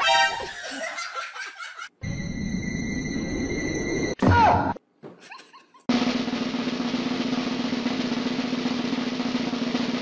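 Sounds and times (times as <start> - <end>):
snare drum roll: 5.9 - 10.0.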